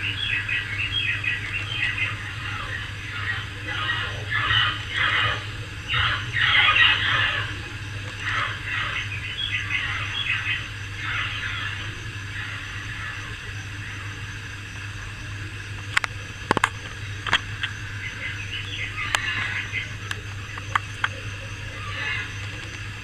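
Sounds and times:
faint chirping: 0.0 - 23.0
low electrical hum: 0.0 - 23.0
sharp clicks: 15.8 - 17.8.

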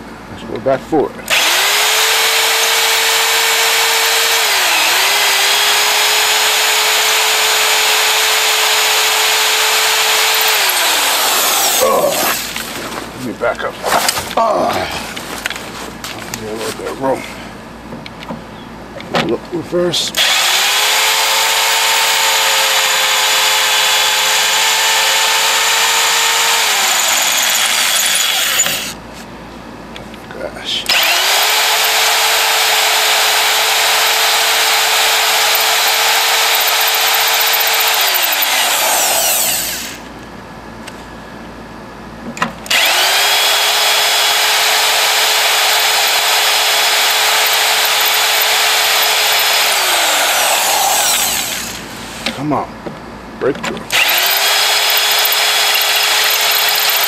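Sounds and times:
electric drill boring into steel: 1.3 - 12.6, 20.2 - 29.0, 30.9 - 40.1, 42.6 - 52.0, 53.9 - 57.0.

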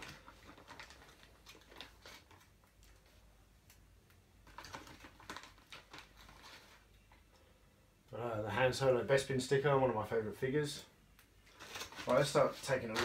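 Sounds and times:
plastic bag crinkling: 0.0 - 3.3, 4.4 - 7.2, 11.4 - 13.0.

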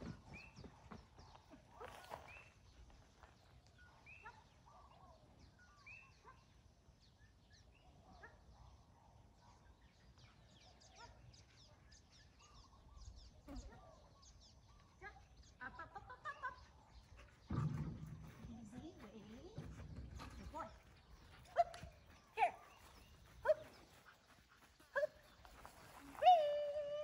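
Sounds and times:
bird calls: 9.5 - 26.4.

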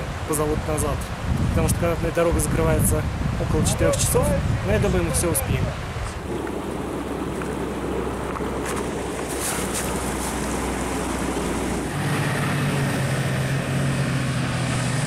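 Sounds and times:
wind noise on microphone: 0.0 - 15.0
snow vehicle engine running: 6.2 - 15.0.

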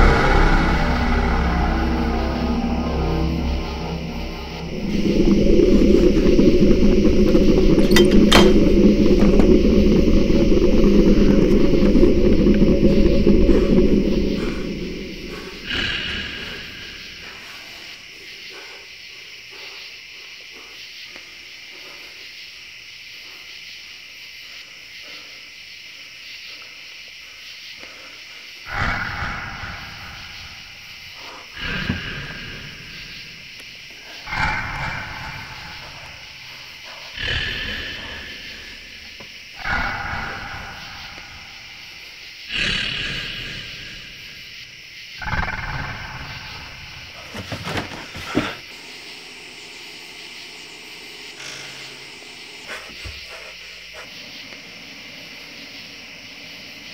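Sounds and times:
loud low boom: 0.0 - 15.8
roar-like growls: 0.0 - 18.8, 28.7 - 44.3, 45.2 - 48.8.

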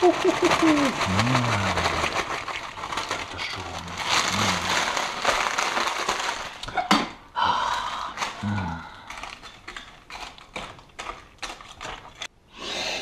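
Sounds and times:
chips and foil bag crinkling: 0.0 - 7.0, 7.6 - 12.3.

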